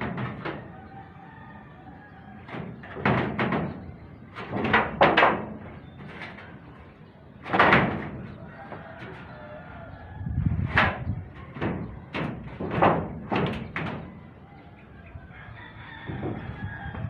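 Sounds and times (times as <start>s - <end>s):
metal roofing sheets banging: 0.0s - 17.0s.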